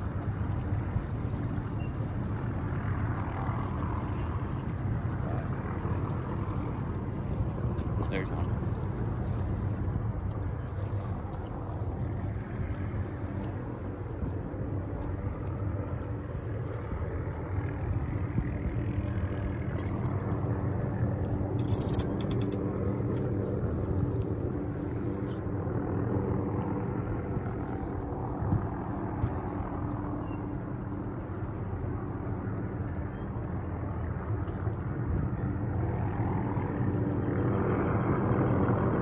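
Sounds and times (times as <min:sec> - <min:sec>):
boat motor rumbling: 0:00.0 - 0:39.0
rapid clicks: 0:21.6 - 0:22.7.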